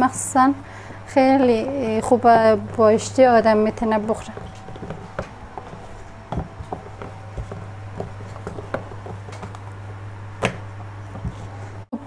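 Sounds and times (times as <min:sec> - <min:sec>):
steady low hum: 0:00.0 - 0:12.0
rolling pin tapping on board: 0:03.8 - 0:11.5.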